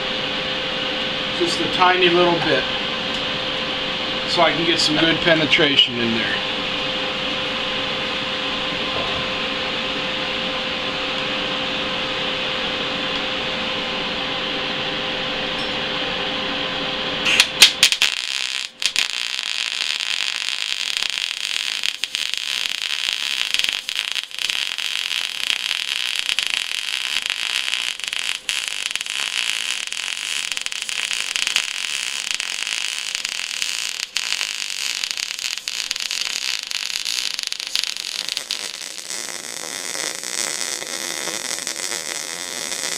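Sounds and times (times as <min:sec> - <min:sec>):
steady hum: 0:00.0 - 0:42.9
welding arc crackling hiss: 0:17.2 - 0:42.9
welding arc pops: 0:17.2 - 0:42.9.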